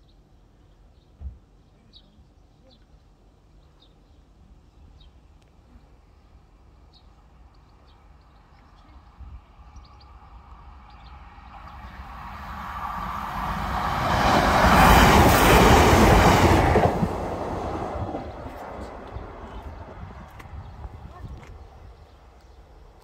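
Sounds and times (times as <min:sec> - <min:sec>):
diesel train rumbling past: 0:09.4 - 0:22.2.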